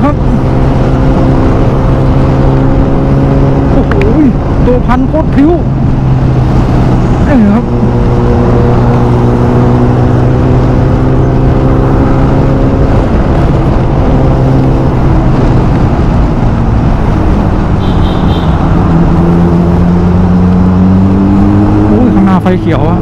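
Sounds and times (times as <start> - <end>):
motorcycle engine running: 0.0 - 23.0
wind and road noise: 0.0 - 23.0.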